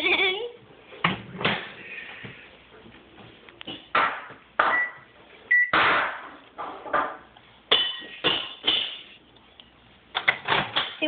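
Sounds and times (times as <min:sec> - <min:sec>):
microwave keypad beeps: 0:04.7 - 0:05.8.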